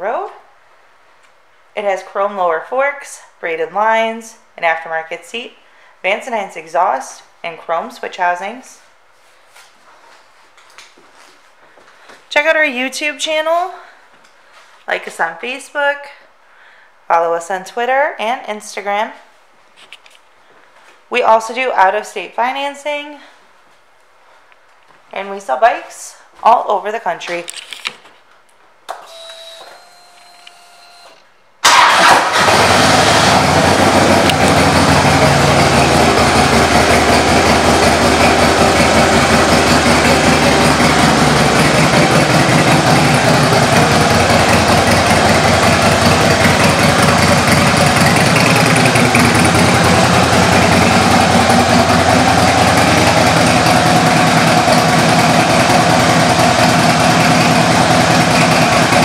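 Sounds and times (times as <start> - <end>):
motorcycle engine idling: 31.9 - 59.0.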